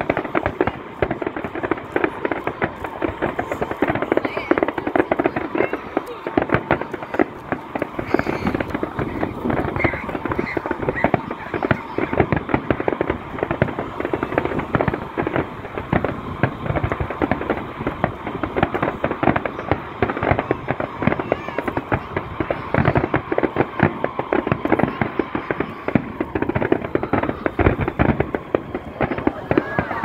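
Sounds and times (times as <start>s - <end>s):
fireworks bangs and crackles: 0.0s - 30.0s.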